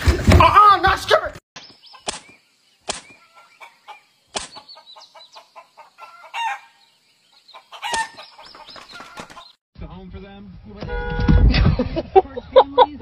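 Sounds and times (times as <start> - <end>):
hen calling: 1.8 - 9.5
sharp clicks: 2.0 - 3.2, 4.3 - 4.6
chick peeping: 3.0 - 6.6.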